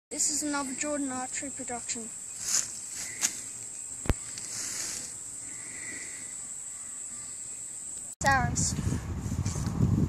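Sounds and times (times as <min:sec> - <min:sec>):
high-pitched insect buzz: 0:00.2 - 0:08.1.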